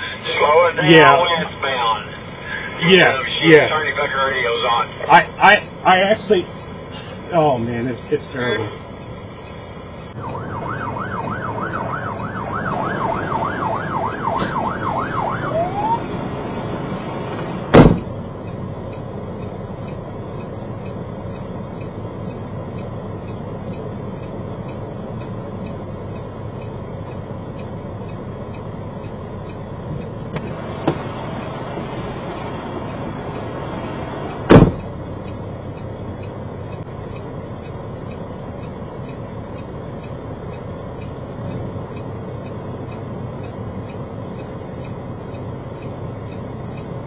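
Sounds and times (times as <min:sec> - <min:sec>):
truck engine rumble: 0:00.0 - 0:47.0
emergency siren yelping: 0:10.1 - 0:17.6
loud sharp thump: 0:14.3 - 0:14.7, 0:17.4 - 0:18.1, 0:30.4 - 0:31.1, 0:34.4 - 0:34.9.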